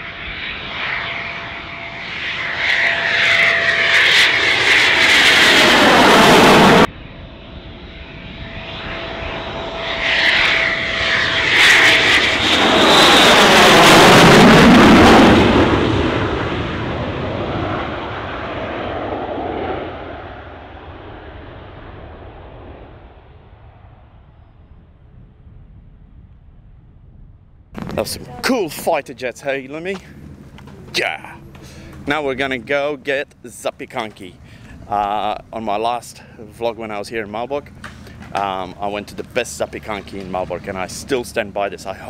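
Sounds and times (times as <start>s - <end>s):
jet engines roaring overhead: 0.0s - 27.2s, 27.8s - 42.0s.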